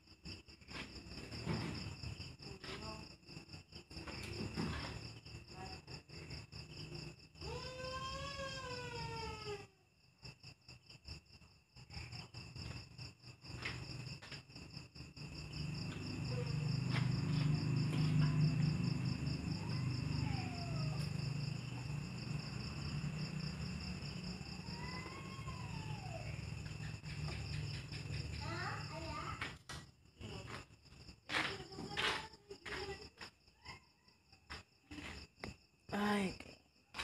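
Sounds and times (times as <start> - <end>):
crickets chirping: 0.0 - 37.0
faint rising and falling cries: 15.8 - 27.6.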